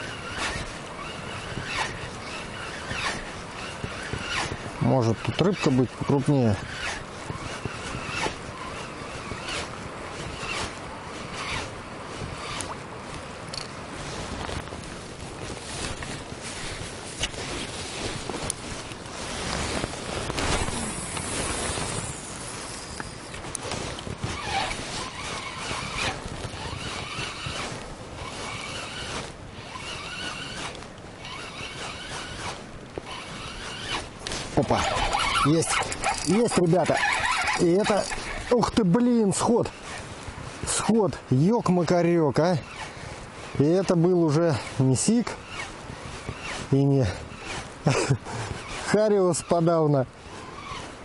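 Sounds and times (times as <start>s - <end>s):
river water: 0.0s - 51.0s
wind: 0.0s - 51.0s
fishing reel cranking: 20.4s - 23.7s, 24.3s - 40.0s.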